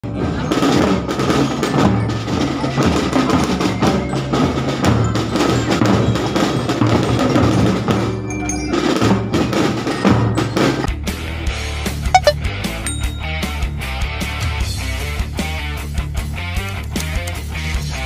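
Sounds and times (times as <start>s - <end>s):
marching drums parade beat: 0.2s - 8.1s
ringing bell notes: 12.2s - 13.6s.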